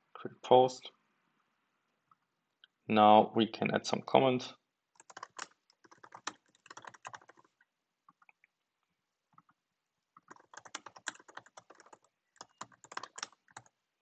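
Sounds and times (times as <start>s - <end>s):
typing on computer keyboard: 5.0s - 8.3s, 10.2s - 13.8s.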